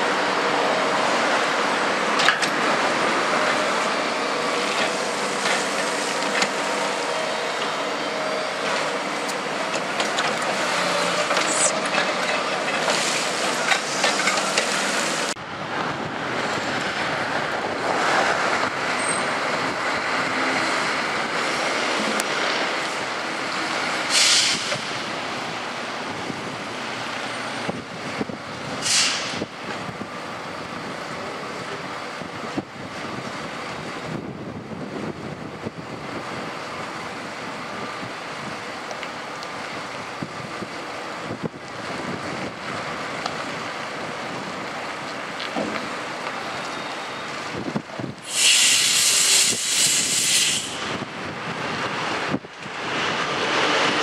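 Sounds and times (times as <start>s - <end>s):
excavator diesel engine running: 0.0s - 28.8s
truck and site noise: 0.0s - 54.0s
sharp air hisses: 10.9s - 11.9s, 24.0s - 25.0s, 28.8s - 29.5s, 48.2s - 51.0s.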